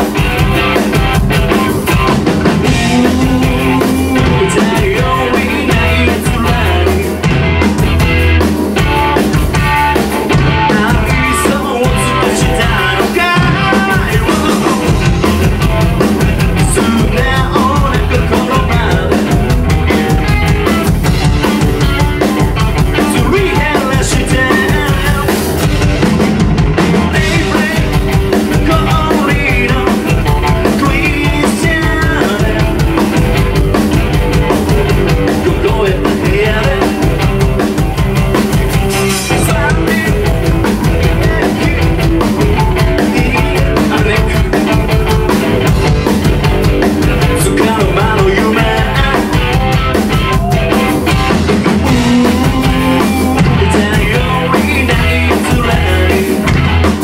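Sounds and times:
drum kit beat: 0.0 - 57.0
electric guitars: 0.0 - 57.0.

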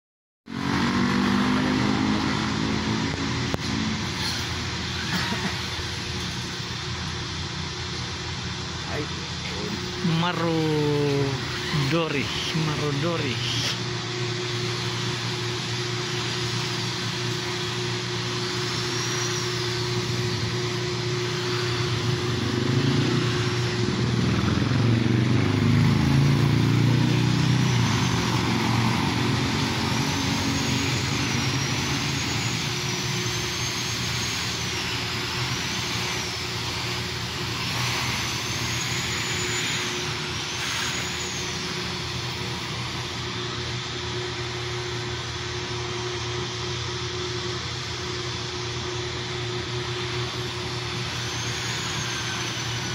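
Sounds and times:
vehicle passing by: 0.5 - 3.1, 22.4 - 31.6
roar of street traffic: 0.5 - 52.9
constant low hum: 2.1 - 52.9
faint high rising and falling sounds: 9.0 - 52.9.

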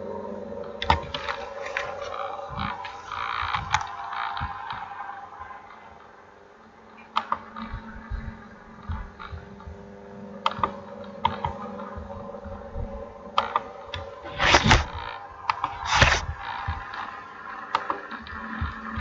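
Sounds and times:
faint steady hum: 0.0 - 19.0
mouse and keyboard clicks: 15.5 - 16.3.

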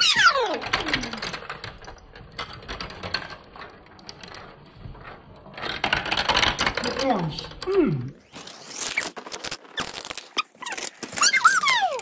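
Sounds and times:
marbles rolling down plastic track: 0.0 - 7.6.

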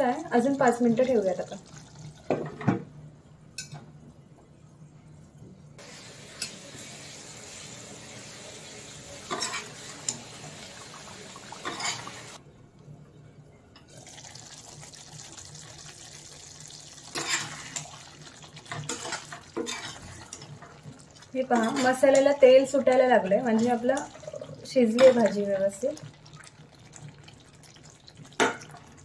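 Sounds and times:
curry bubbling in a pan: 14.0 - 29.0.

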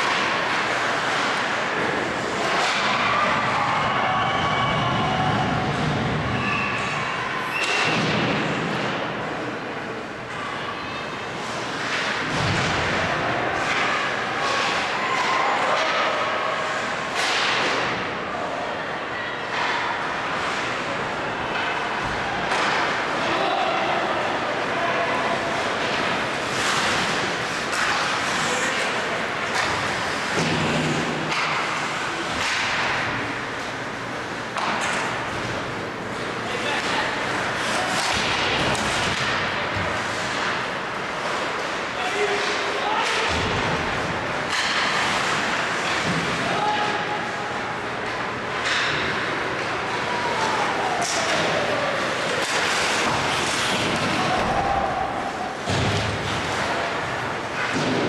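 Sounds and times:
hockey sticks and puck cracks: 0.0 - 4.0, 4.8 - 9.5, 11.4 - 18.2, 19.5 - 58.0
crowd murmur: 8.1 - 58.0
skates scraping ice: 24.6 - 33.8, 34.5 - 42.8, 50.4 - 58.0.

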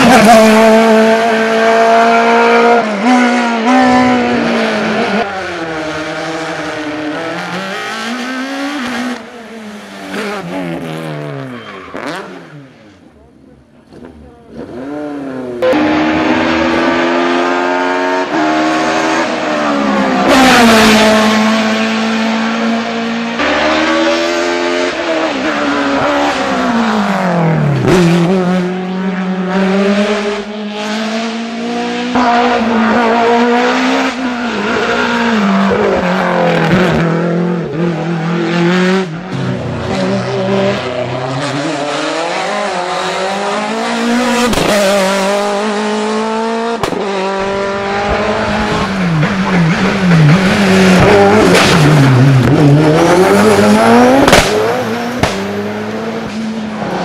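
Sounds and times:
race car engines revving: 0.0 - 57.0
sharp cracks: 54.2 - 55.5.

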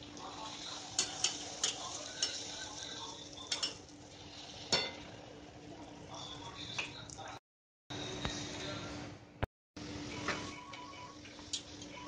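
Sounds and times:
food sizzling in hot oil: 0.0 - 6.9
metal spatula clinking on pan: 1.0 - 2.5, 3.5 - 3.8, 4.7 - 5.0.

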